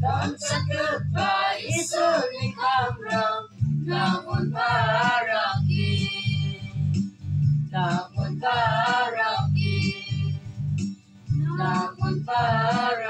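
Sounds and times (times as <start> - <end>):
low bass line: 0.0 - 1.9, 3.6 - 5.0, 5.6 - 8.8
mixed choir singing: 0.0 - 6.7, 7.8 - 10.3, 11.4 - 13.0.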